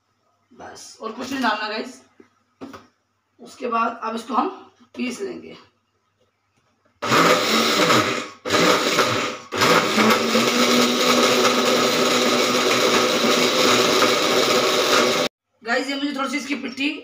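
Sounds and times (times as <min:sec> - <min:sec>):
electric mixer grinder grinding: 0:07.0 - 0:15.3.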